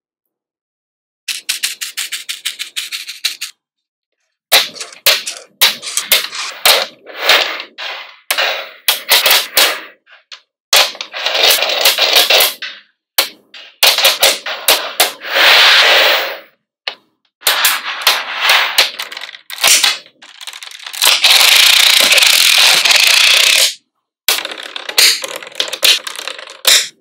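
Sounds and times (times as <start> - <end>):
magnetic balls clicking together: 1.3 - 3.5, 18.8 - 27.0.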